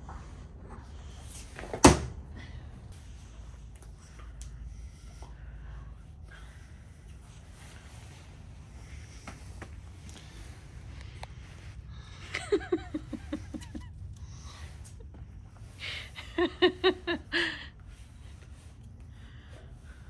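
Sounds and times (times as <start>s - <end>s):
person laughing: 12.2s - 15.2s, 15.8s - 17.7s.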